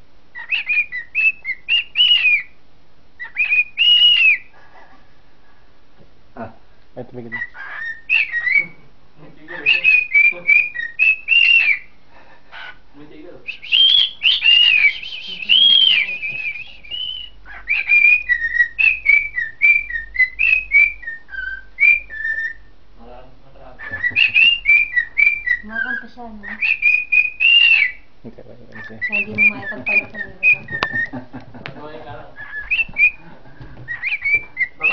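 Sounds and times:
cockatiel whistling: 0:00.4 - 0:02.6, 0:03.2 - 0:04.5, 0:07.3 - 0:08.8, 0:09.5 - 0:11.9, 0:13.5 - 0:22.7, 0:23.8 - 0:28.1, 0:28.8 - 0:31.2, 0:32.4 - 0:34.9.

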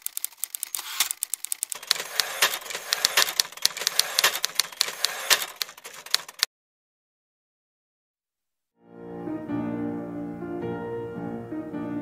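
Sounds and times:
typewriter key clacks: 0:00.0 - 0:06.5.

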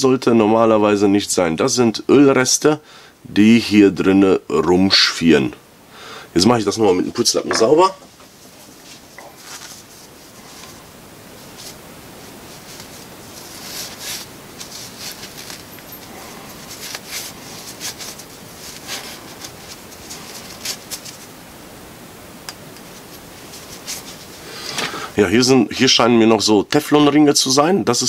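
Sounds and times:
rag rubbing metal parts: 0:12.6 - 0:21.2.

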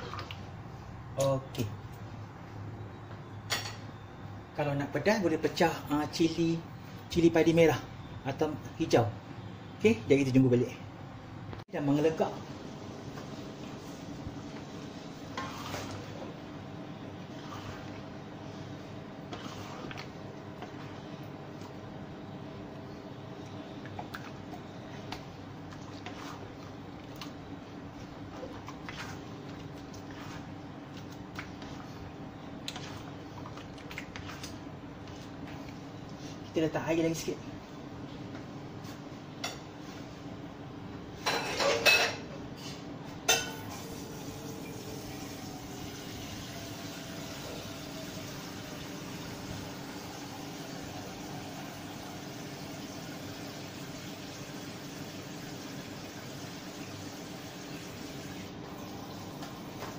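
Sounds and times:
thick sauce boiling: 0:12.1 - 0:36.7, 0:43.7 - 0:59.9
ladle scraping a pan: 0:15.3 - 0:16.2, 0:17.3 - 0:18.0, 0:19.2 - 0:20.2
electric cooker hum: 0:43.4 - 0:59.9
sauce bubbling in a wok: 0:43.8 - 0:59.9.

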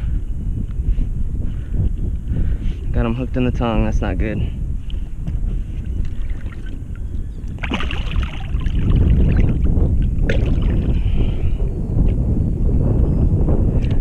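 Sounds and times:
wind rumbling on microphone: 0:00.0 - 0:14.0
water splashing and sloshing: 0:06.0 - 0:06.9, 0:07.5 - 0:10.9.

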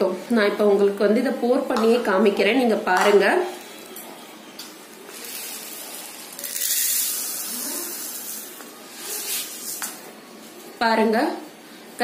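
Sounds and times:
dry lentils pouring into plastic bowl: 0:05.1 - 0:08.6.

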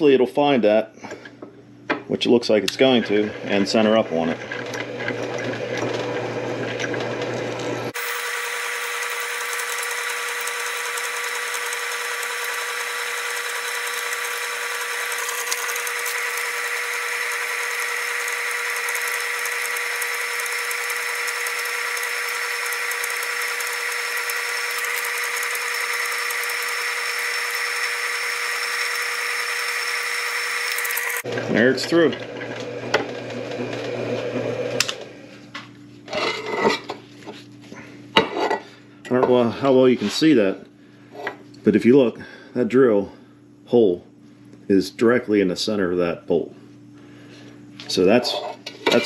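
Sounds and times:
drill press whining: 0:02.8 - 0:35.1.

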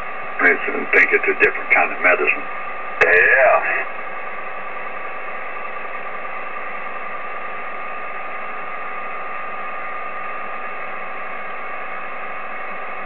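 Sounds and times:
radio band noise hiss: 0:00.0 - 0:07.0
faint steady tones: 0:00.0 - 0:13.0.

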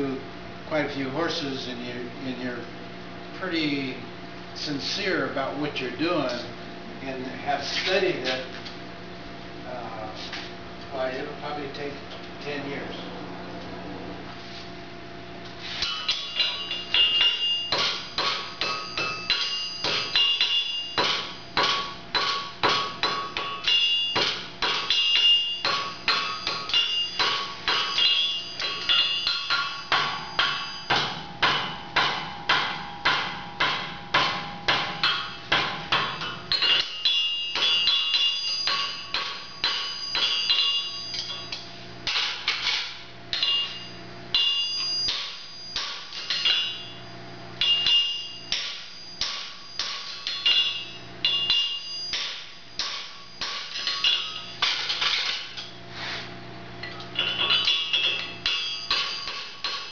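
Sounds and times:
hammer ringing on anvil: 0:15.8 - 0:55.8, 0:56.8 - 0:59.9.

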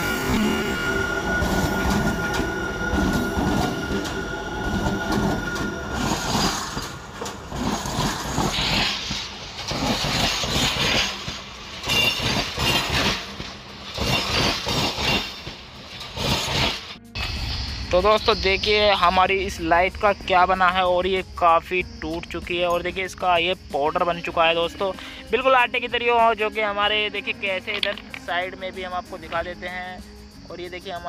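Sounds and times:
thin steady squeal: 0:00.0 - 0:07.0
train wheels clacking over track: 0:00.0 - 0:17.2.

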